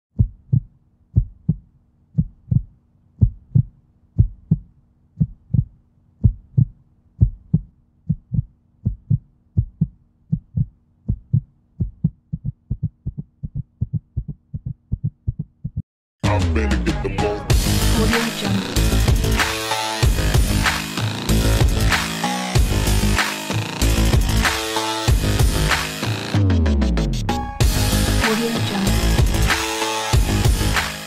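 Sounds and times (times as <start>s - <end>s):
heartbeat thumps: 0.1s - 15.8s, 18.9s - 19.4s.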